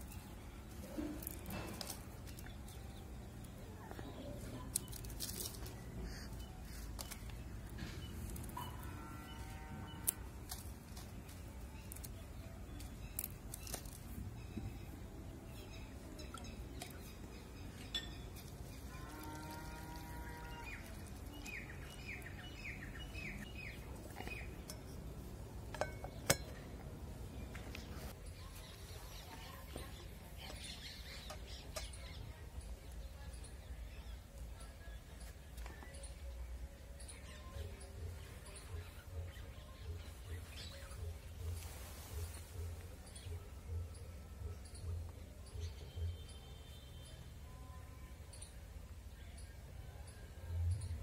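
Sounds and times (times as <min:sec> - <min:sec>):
dried chillies crackling and breaking: 0:00.9 - 0:08.6, 0:10.0 - 0:14.2, 0:18.4 - 0:23.4
steel plate clinking: 0:24.3 - 0:26.8.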